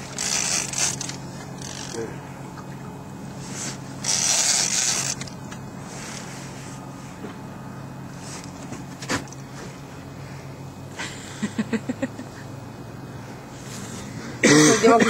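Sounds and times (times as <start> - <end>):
fishing reel creaking: 0.0 - 2.0, 4.0 - 5.4
steady low hum: 0.0 - 15.0.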